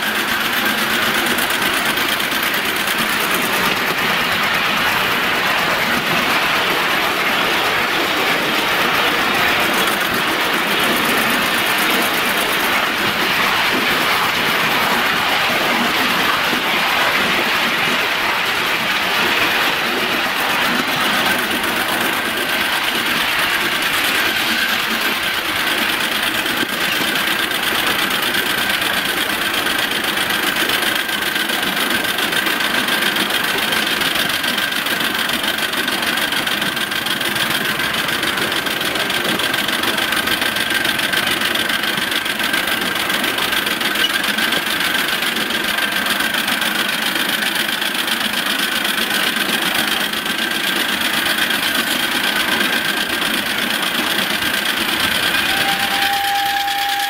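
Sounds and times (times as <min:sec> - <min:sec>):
miniature steam locomotive running: 0:00.0 - 0:57.0
faint high tone: 0:55.5 - 0:57.0.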